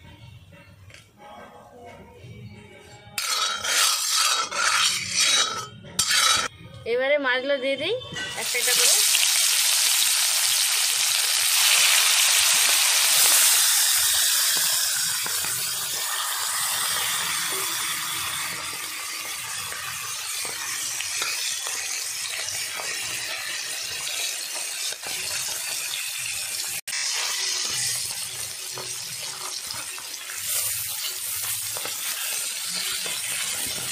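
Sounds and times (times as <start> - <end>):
fish sizzling in hot oil: 8.4 - 33.9.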